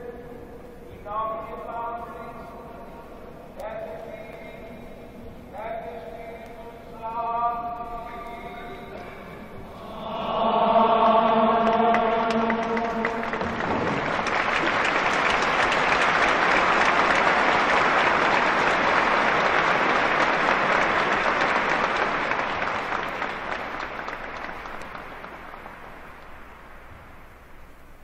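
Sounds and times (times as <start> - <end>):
large crowd applauding: 11.4 - 26.9.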